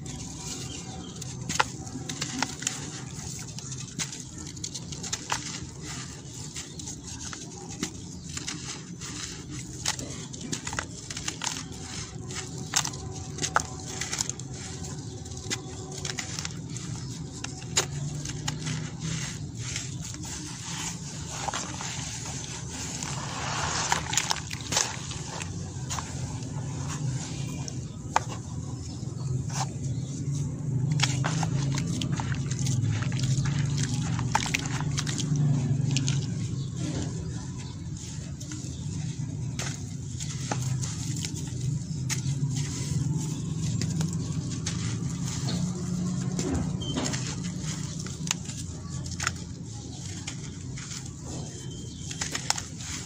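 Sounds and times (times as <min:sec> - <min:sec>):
gritty crunches of crumbling cement: 0:00.0 - 0:53.0
water dripping and sloshing: 0:31.0 - 0:36.3.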